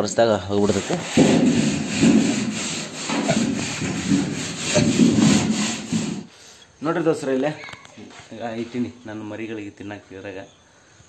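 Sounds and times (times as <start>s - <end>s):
rough rubbing of feed trough: 0.6s - 6.3s.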